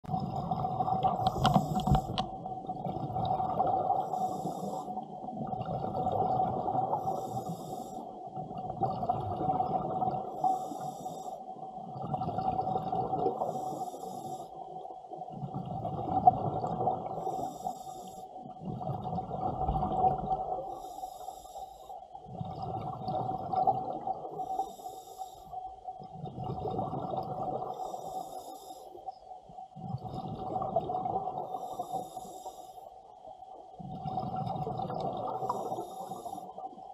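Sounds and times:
exhaled bubbles rushing: 0.1s - 4.1s, 5.3s - 7.1s, 8.5s - 10.3s, 15.3s - 17.2s, 18.6s - 20.7s, 22.3s - 24.4s, 26.1s - 27.8s, 29.8s - 31.5s, 33.8s - 35.8s
regulator inhale hiss: 3.9s - 5.1s, 6.9s - 8.3s, 10.3s - 11.6s, 13.4s - 14.7s, 17.2s - 18.4s, 20.7s - 22.1s, 24.4s - 25.6s, 27.7s - 29.2s, 31.5s - 33.1s, 35.4s - 36.8s.

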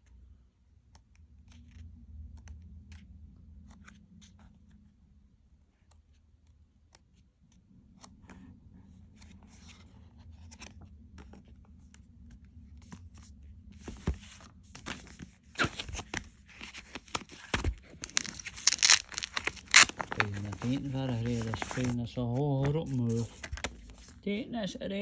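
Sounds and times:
book pages turning: 0.8s - 4.9s, 5.7s - 24.2s
plastic sleeve crinkling: 15.0s - 24.3s.

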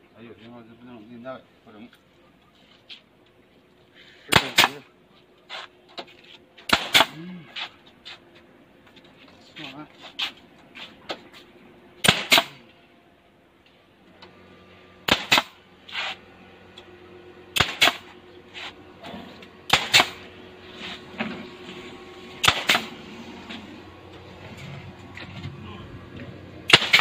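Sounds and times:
nail gun double shots: 4.3s - 4.8s, 6.7s - 7.3s, 12.0s - 12.6s, 15.0s - 16.1s, 17.6s - 18.1s, 19.7s - 20.2s, 22.4s - 22.9s, 26.7s - 27.0s.

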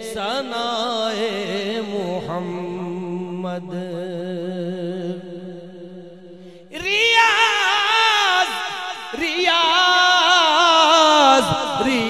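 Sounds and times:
man singing wavering melody: 0.0s - 12.0s.

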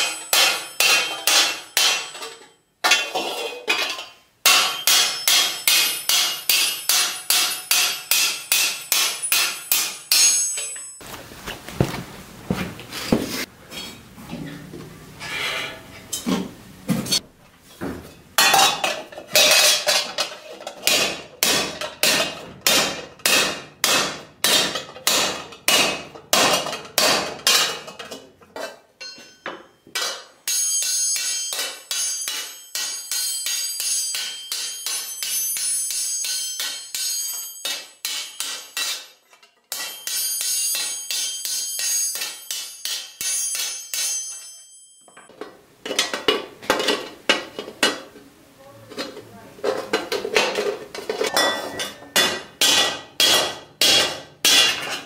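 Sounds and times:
hammer striking ringing steel: 0.0s - 3.0s, 4.5s - 11.0s, 29.0s - 39.1s, 39.7s - 45.3s.

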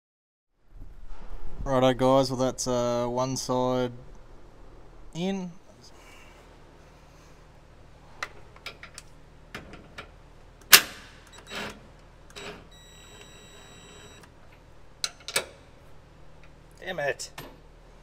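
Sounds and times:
cordless ratchet motor whining: 12.4s - 14.3s.

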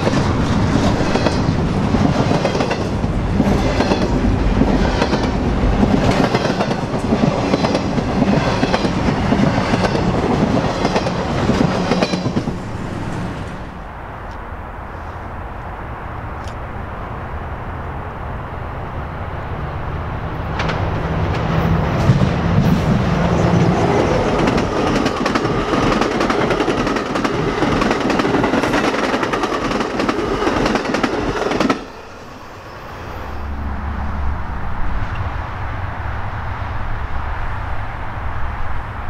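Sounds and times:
train wheels clattering: 0.0s - 12.6s, 20.6s - 32.1s.

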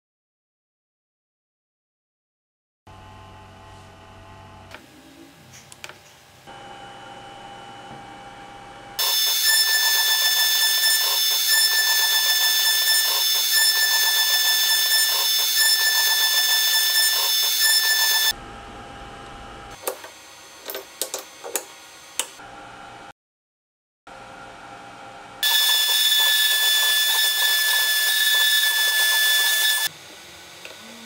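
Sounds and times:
cnc spindle whining: 6.5s - 19.6s, 25.4s - 29.9s.

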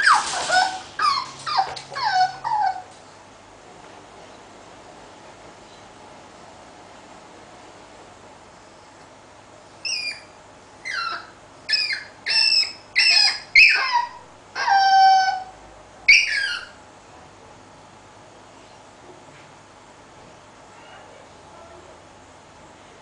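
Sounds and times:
puppy whining and yipping: 0.0s - 2.9s, 9.8s - 16.8s.

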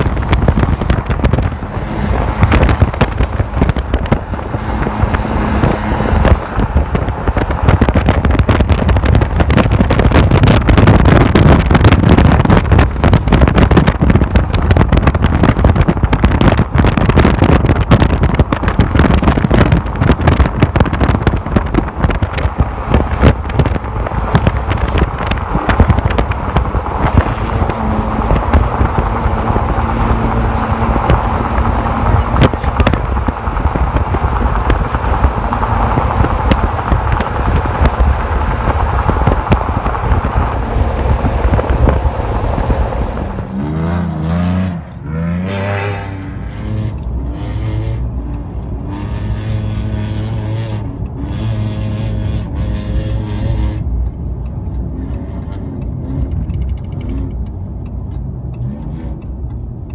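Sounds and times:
wind buffeting microphone: 0.0s - 47.2s.

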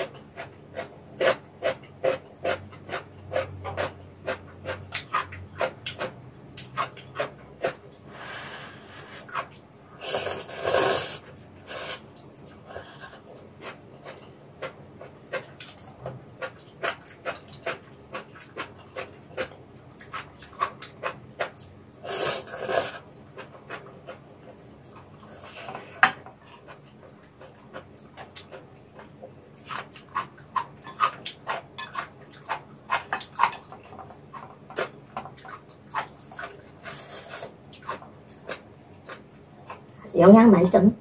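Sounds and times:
wet chewing: 0.0s - 7.9s, 9.0s - 40.0s
noodles slurped: 10.0s - 12.0s.

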